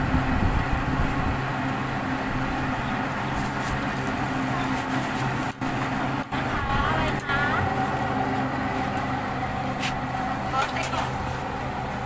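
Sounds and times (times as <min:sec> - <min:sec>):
engine hum: 0:00.0 - 0:12.0
market background noise: 0:02.4 - 0:12.0.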